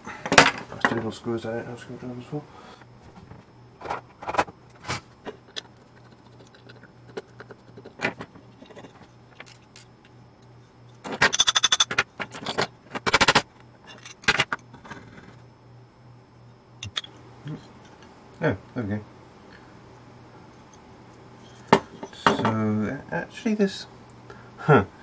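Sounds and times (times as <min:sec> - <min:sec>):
metal parts clicking and clinking: 0:08.6 - 0:09.9, 0:11.0 - 0:14.6.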